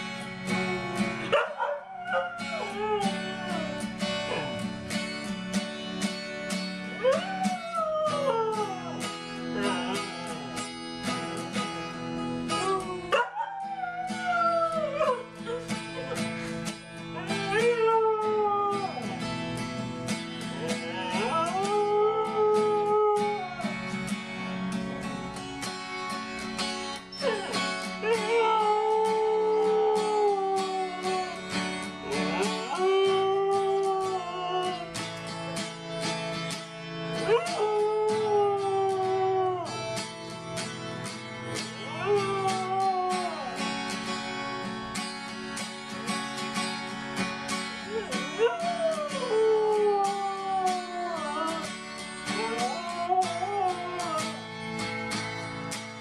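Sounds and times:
strummed acoustic guitar: 0.0s - 56.0s
dog howling: 0.5s - 4.8s, 7.0s - 10.6s, 12.4s - 16.3s, 17.1s - 19.3s, 20.6s - 23.9s, 27.1s - 35.0s, 37.2s - 40.0s, 41.8s - 43.8s, 47.8s - 54.4s.

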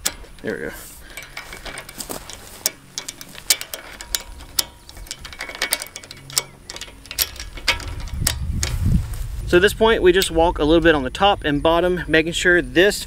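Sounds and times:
chain links clinking: 0.0s - 9.0s
ratchet clicks: 0.0s - 9.0s.

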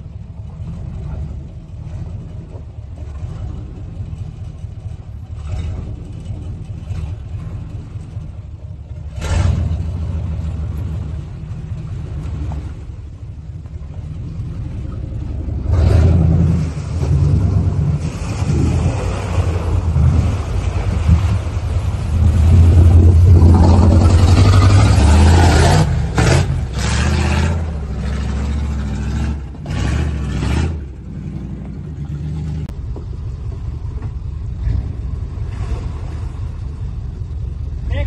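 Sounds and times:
pickup truck engine running: 0.0s - 38.0s
water washing around truck: 0.0s - 38.0s.

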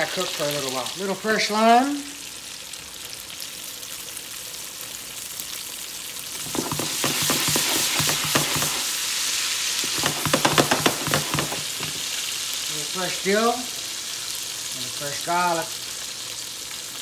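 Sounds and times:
fish frying in hot oil: 0.0s - 17.0s.

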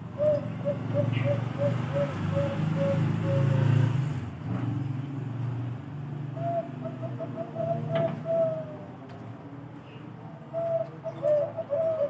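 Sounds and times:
dove cooing: 0.0s - 4.0s, 6.3s - 9.1s, 10.3s - 12.0s.

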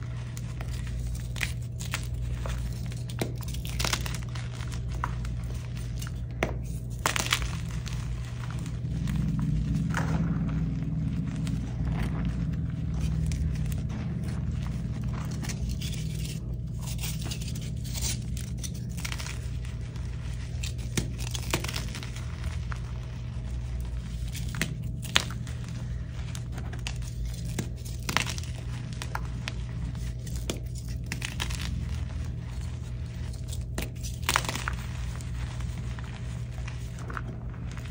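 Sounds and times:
hands crumbling chalk: 0.0s - 37.9s
steady low hum: 0.0s - 37.9s
chalk pieces snapping: 0.1s - 9.3s, 20.4s - 22.6s, 23.8s - 37.9s.

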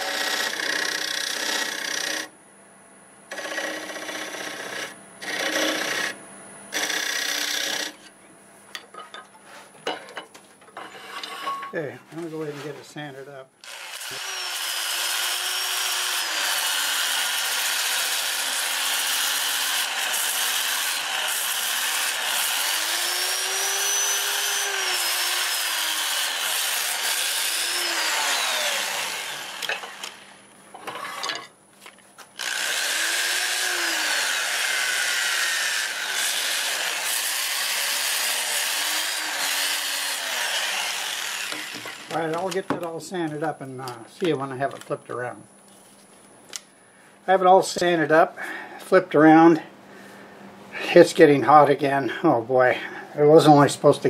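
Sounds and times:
rotary sander on turning wood: 0.0s - 2.3s, 3.3s - 8.0s, 13.6s - 30.3s, 32.4s - 42.6s.

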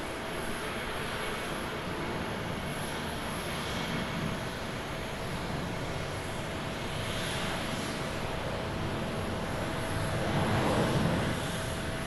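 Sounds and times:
jet engines at takeoff: 0.0s - 12.0s.

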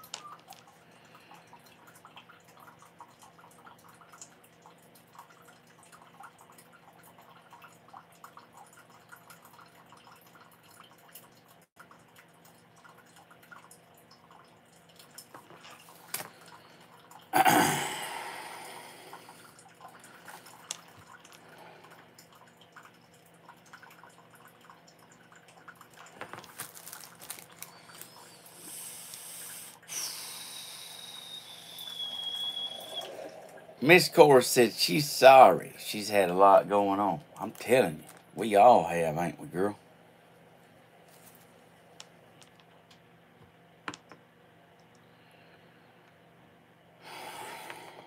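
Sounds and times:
coffee maker dripping and ticking: 0.0s - 17.3s, 18.7s - 38.4s
coffee maker hissing gurgle: 17.4s - 20.6s, 27.6s - 35.4s, 47.0s - 48.0s.

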